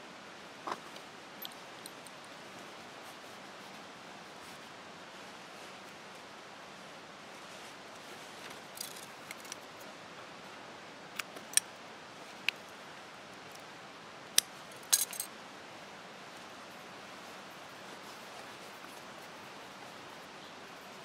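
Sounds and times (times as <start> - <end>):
handling rustle: 0.7 - 9.9, 14.6 - 15.3, 16.3 - 21.0.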